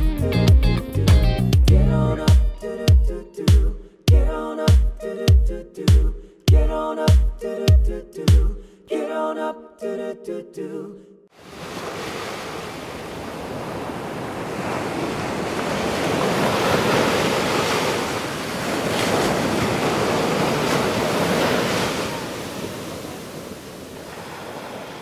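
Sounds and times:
ocean surf washing onto shore: 0:11.4 - 0:25.0.

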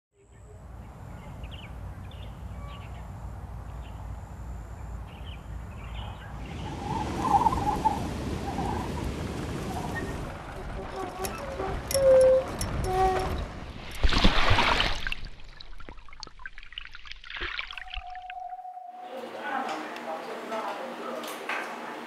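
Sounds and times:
birds chirping: 0:00.3 - 0:13.4.

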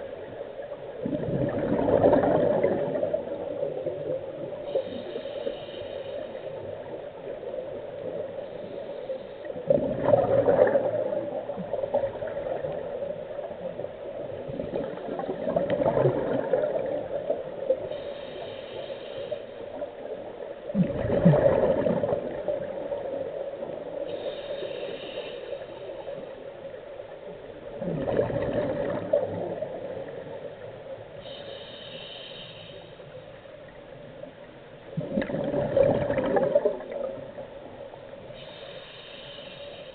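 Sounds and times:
gurgling exhaled bubbles: 0:01.0 - 0:04.1, 0:09.6 - 0:13.6, 0:14.2 - 0:17.4, 0:20.7 - 0:23.3, 0:27.7 - 0:30.2, 0:34.9 - 0:37.4
faint inhaling hiss: 0:03.2 - 0:09.7, 0:16.9 - 0:20.7, 0:22.7 - 0:27.6, 0:29.5 - 0:34.6, 0:37.2 - 0:39.9.

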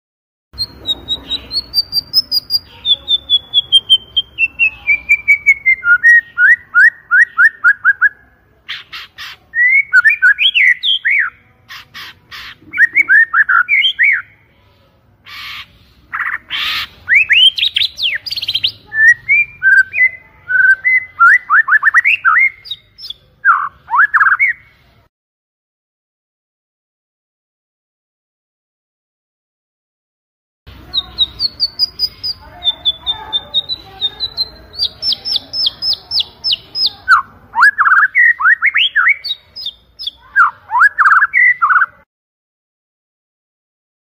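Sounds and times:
harsh rasping bird notes: 0:00.6 - 0:06.2
songbird whistling: 0:00.6 - 0:08.2, 0:09.5 - 0:11.4, 0:12.7 - 0:14.4, 0:16.1 - 0:24.7, 0:30.9 - 0:41.9.

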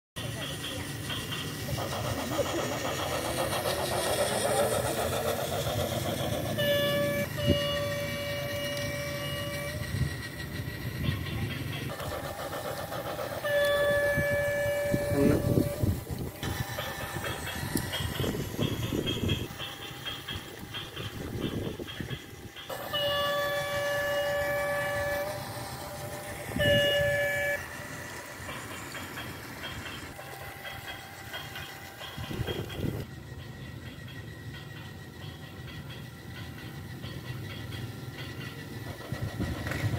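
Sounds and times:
toy train rattling on track: 0:00.2 - 0:39.9
toy train electronic horn: 0:06.5 - 0:10.1, 0:11.1 - 0:19.5, 0:20.8 - 0:28.2
electronic horn tone: 0:06.6 - 0:09.8, 0:13.4 - 0:15.8, 0:26.6 - 0:27.7.

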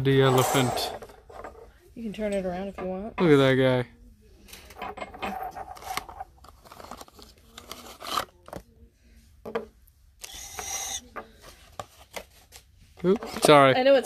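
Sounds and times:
figurines tapping on tabletop: 0:09.4 - 0:09.7.

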